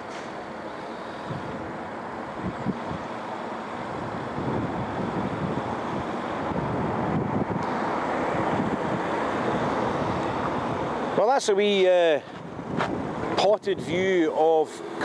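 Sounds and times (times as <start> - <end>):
street traffic: 0.0 - 15.0
wind buffeting microphone: 1.3 - 1.7, 2.3 - 3.2, 3.9 - 11.2, 12.3 - 14.9.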